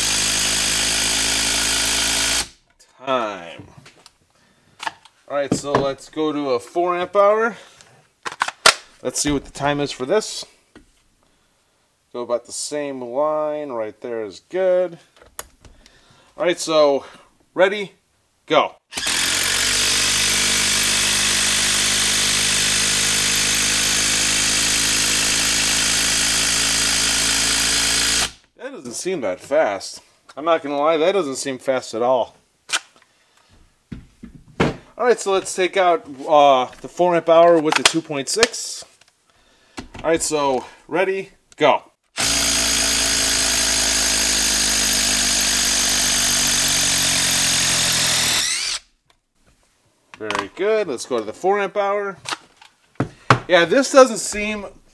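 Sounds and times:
impact driver hammering: 0.0 - 2.6
impact driver hammering screw: 0.0 - 2.6, 18.9 - 28.4, 42.2 - 48.8.

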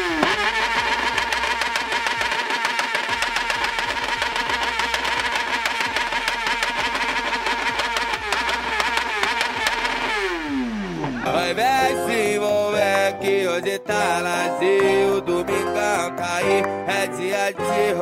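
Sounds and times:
motorcycle engine at rev limiter: 0.0 - 11.5
music: 10.5 - 18.0.

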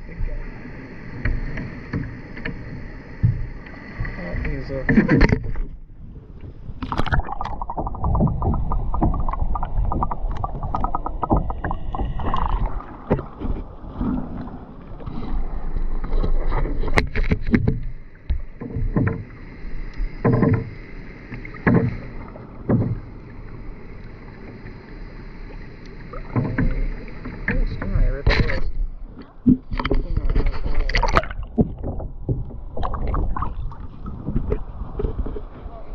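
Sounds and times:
paddle strokes in water: 0.0 - 5.8, 6.4 - 35.9
water sloshing against hull: 0.0 - 35.9.

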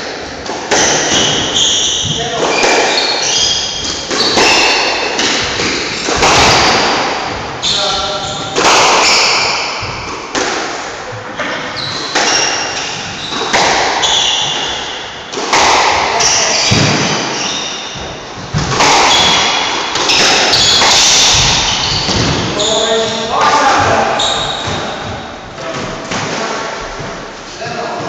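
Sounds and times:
shoes squeaking on wooden floor: 0.7 - 10.3, 11.2 - 26.1
squash ball thwacks: 3.8 - 7.3, 12.1 - 17.3, 18.0 - 22.5.

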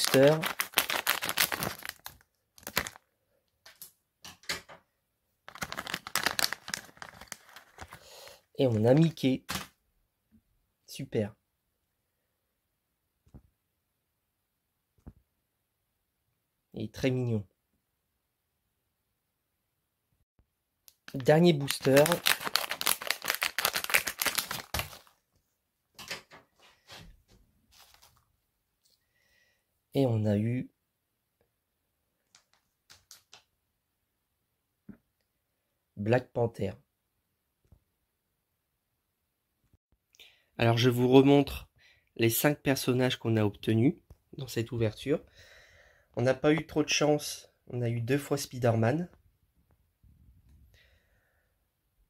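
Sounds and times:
foil pack crinkling: 0.0 - 3.1, 5.5 - 9.1, 21.0 - 25.2, 27.7 - 28.2.

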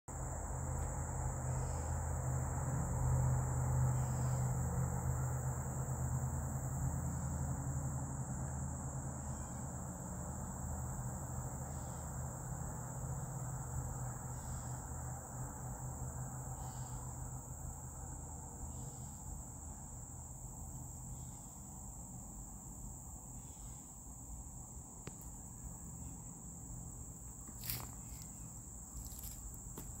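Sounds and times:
crickets chirping: 0.1 - 30.0.

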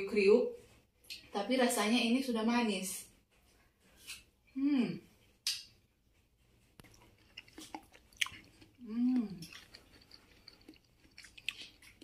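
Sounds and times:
person chewing crisp melon: 6.6 - 12.0
person humming: 8.8 - 9.5.

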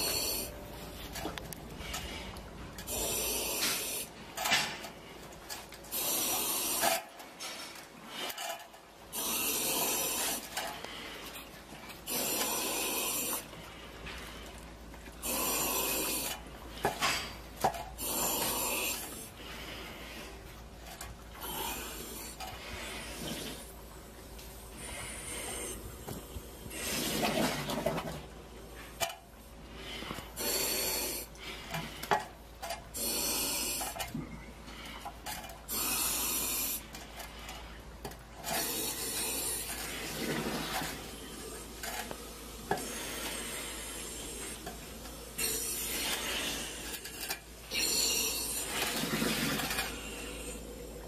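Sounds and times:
person breathing heavily: 24.6 - 27.0, 41.2 - 51.0.

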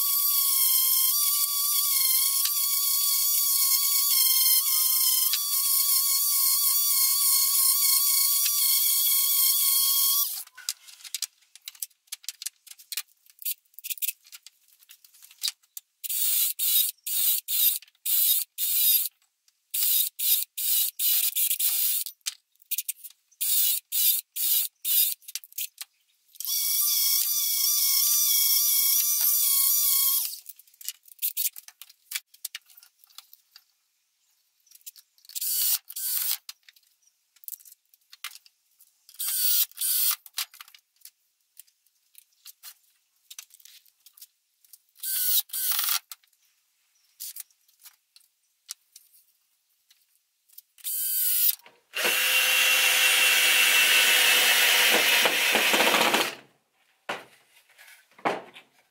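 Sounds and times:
cordless drill bursts: 0.0 - 10.4, 50.9 - 56.4
electric sander whining: 52.0 - 56.4.

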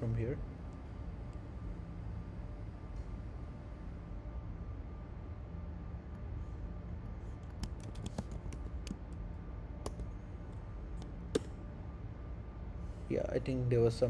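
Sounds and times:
steady low hum: 0.0 - 14.0
keyboard key clicks: 7.4 - 9.0, 9.8 - 10.1.

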